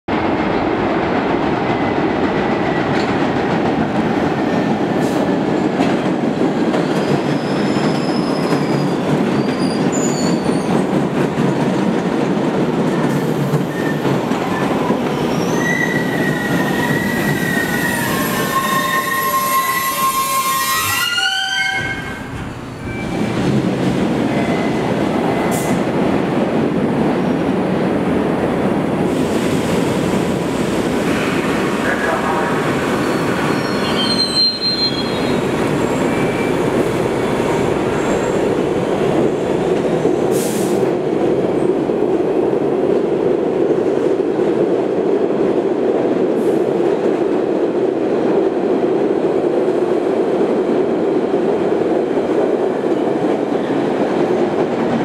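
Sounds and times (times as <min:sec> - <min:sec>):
subway train rumbling: 0:00.1 - 0:55.0
high metal squeals: 0:15.3 - 0:22.2, 0:33.1 - 0:35.4.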